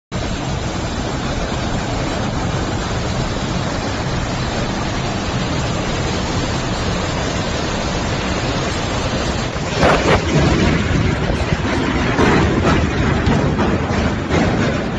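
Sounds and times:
heavy rain: 0.1 - 14.9
strong wind rushing: 4.9 - 14.9.

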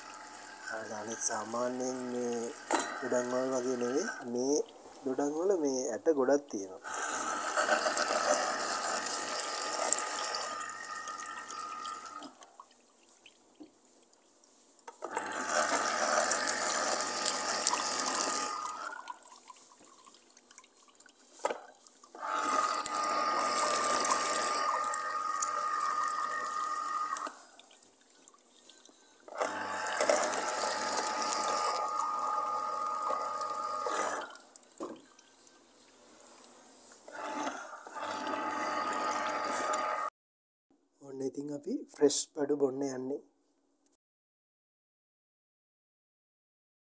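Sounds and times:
electric juicer motor running: 0.0 - 4.3, 6.9 - 12.3, 15.0 - 19.0, 22.2 - 27.4, 29.3 - 35.0, 37.1 - 40.1
juice trickling into a glass: 0.0 - 5.5, 6.9 - 40.1.

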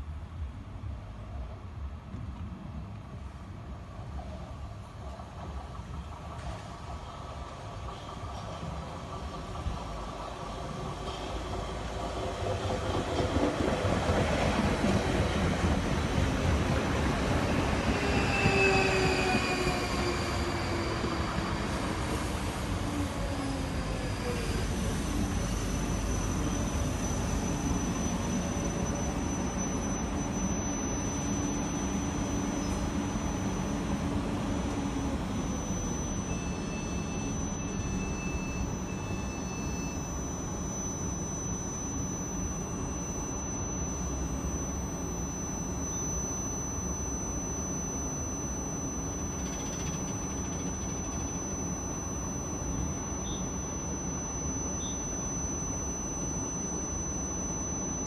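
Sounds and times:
train equipment humming: 2.0 - 58.0
high whine: 11.8 - 58.0
short electronic beeps: 24.4 - 58.0.

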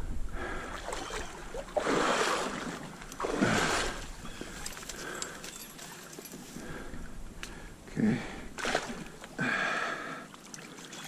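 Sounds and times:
water splashing: 0.6 - 5.2, 8.5 - 11.0
stream rushing: 0.8 - 4.8.

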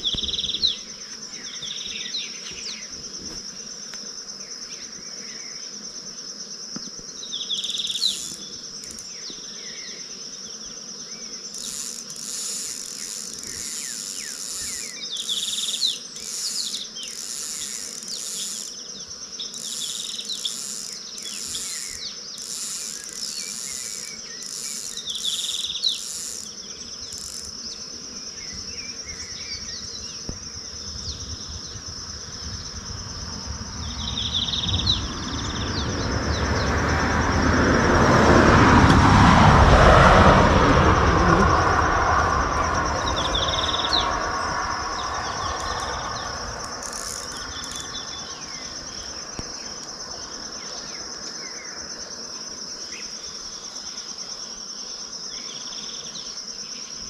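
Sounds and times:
insects shrilling: 0.0 - 33.1, 40.8 - 51.1
high pulsing insect buzz: 0.0 - 57.0
sharp insect chirps: 0.0 - 57.0.

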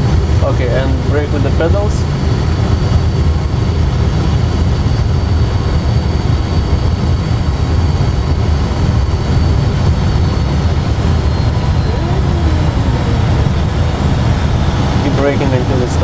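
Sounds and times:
airliner rumbling on runway: 9.3 - 16.0
faint high whine: 11.3 - 16.0.

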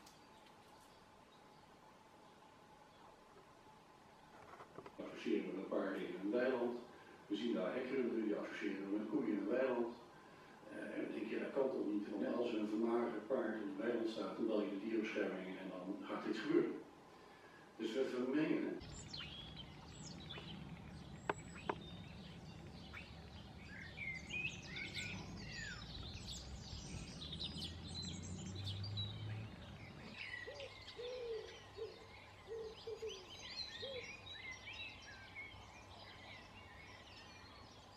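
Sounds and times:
songbirds chirping and singing: 18.4 - 37.9
low background rumble: 18.6 - 32.5
low hooting notes: 18.8 - 32.4.

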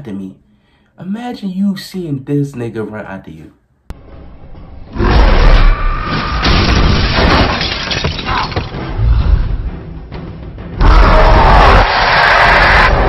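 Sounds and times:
crashing and breaking effects: 5.0 - 9.0
film music: 8.2 - 13.0.

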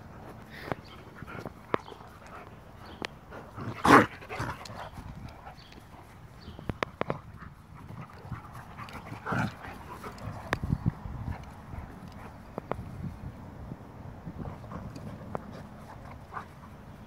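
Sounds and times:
dog panting: 0.1 - 12.5
dog snarling: 3.5 - 4.7, 9.2 - 10.2.

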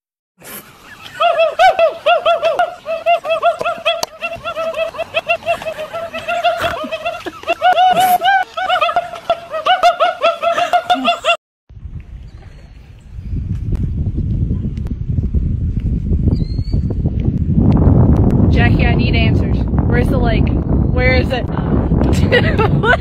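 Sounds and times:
high-pitched rapid giggling: 0.9 - 11.4.

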